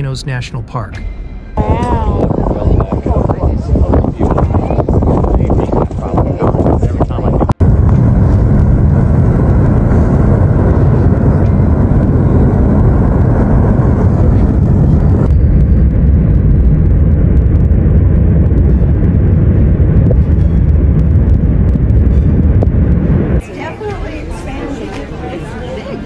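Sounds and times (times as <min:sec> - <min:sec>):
lava fountains rushing: 0:02.2 - 0:24.6.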